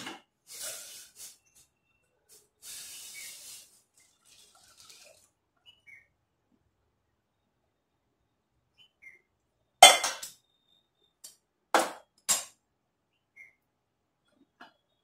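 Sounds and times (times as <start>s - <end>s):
steel cookware clinking: 9.8s - 10.4s.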